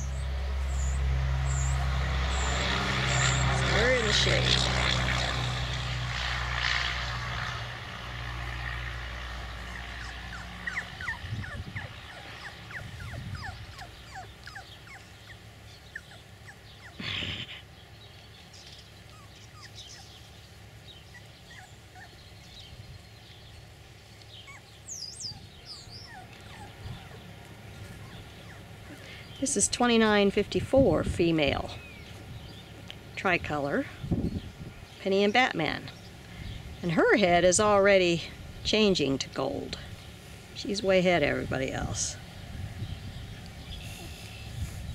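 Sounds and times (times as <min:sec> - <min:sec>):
low steady drone: 0:00.0 - 0:14.1
puppy whimpering and squeaking: 0:09.7 - 0:17.2, 0:19.1 - 0:20.1, 0:21.1 - 0:22.2, 0:24.4 - 0:29.1.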